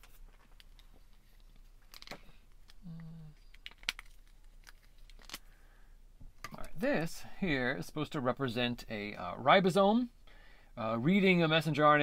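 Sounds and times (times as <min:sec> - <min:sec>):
man humming: 0:02.8 - 0:03.4
markers clicking and rustling: 0:03.4 - 0:05.4.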